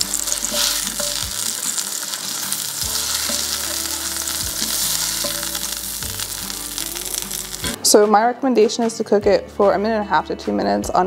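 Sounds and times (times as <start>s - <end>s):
burgers sizzling in a skillet: 0.0s - 7.8s.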